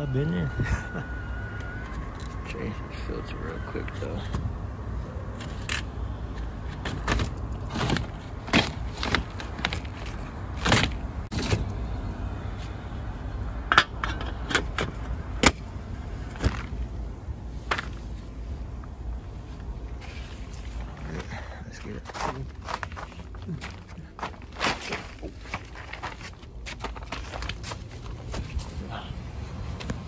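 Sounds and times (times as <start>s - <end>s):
steady low rumble: 0.0s - 30.0s.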